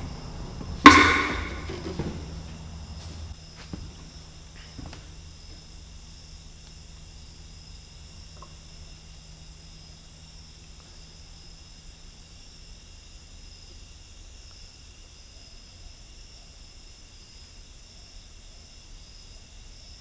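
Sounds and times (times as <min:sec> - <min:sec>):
high whine: 0:00.0 - 0:03.2
faint steady hum: 0:00.0 - 0:20.0.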